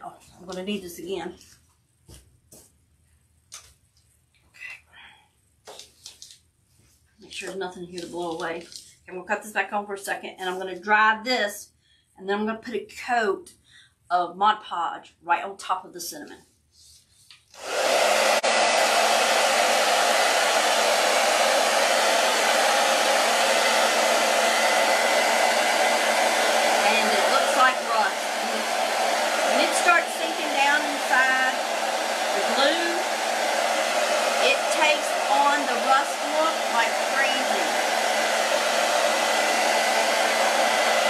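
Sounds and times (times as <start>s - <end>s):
hair dryer blowing: 17.5s - 41.0s.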